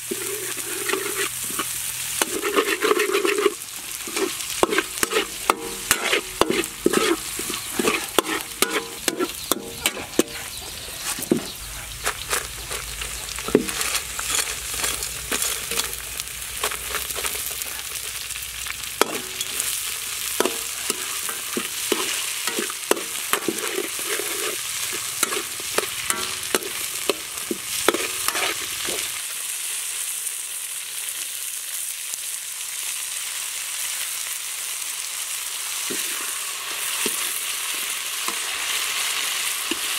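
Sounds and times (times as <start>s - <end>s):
metal spatula scraping wok: 0.0s - 29.2s
food sizzling: 0.0s - 39.9s.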